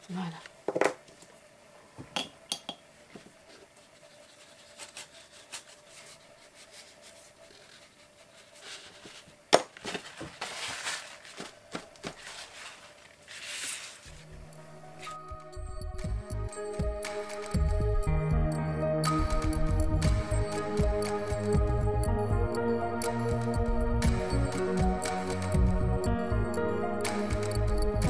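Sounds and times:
pastel rubbing on paper: 0:03.8 - 0:09.3.

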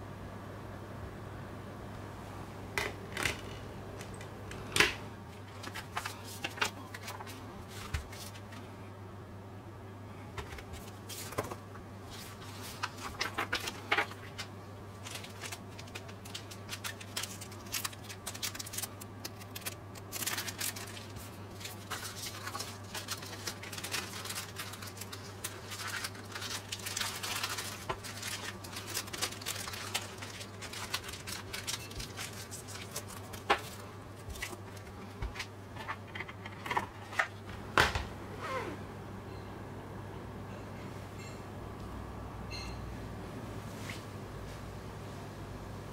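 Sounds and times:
steady low hum: 0:00.0 - 0:45.9
packaging rustling and clicking: 0:12.2 - 0:37.4.

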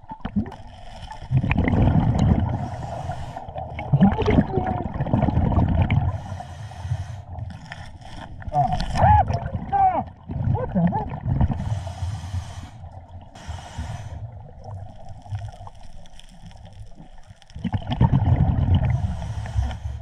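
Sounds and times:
exhaled bubbles gurgling underwater: 0:00.0 - 0:20.0
regulator hissing inhalation: 0:02.5 - 0:03.6, 0:06.1 - 0:07.4, 0:11.6 - 0:14.4, 0:18.9 - 0:20.0.

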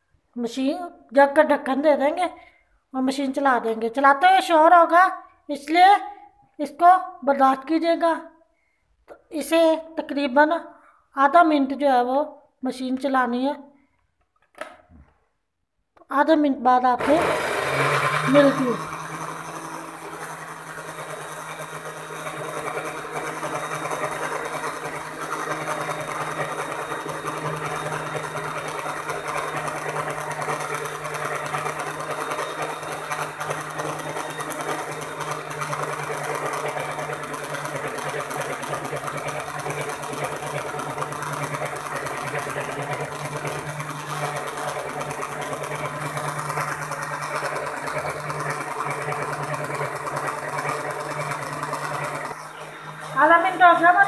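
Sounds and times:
electric blender running: 0:17.0 - 0:54.0.

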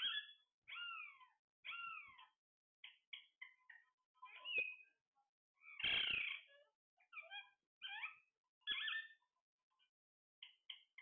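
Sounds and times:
parakeet squawks: 0:00.0 - 0:04.9, 0:05.6 - 0:09.2
parakeets chirping: 0:00.0 - 0:05.0, 0:05.6 - 0:09.2.

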